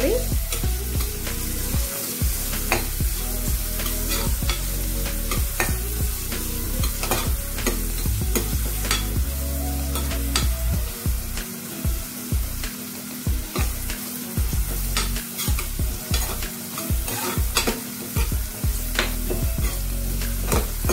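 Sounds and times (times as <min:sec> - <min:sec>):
onions sizzling in hot oil: 0:00.0 - 0:20.9
spatula scraping pan bottom: 0:14.8 - 0:18.3.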